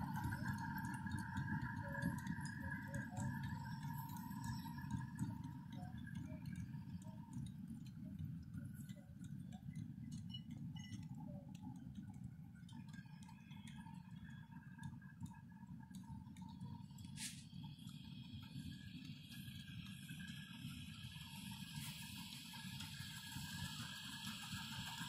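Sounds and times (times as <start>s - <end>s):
short hiss: 17.2s - 17.4s.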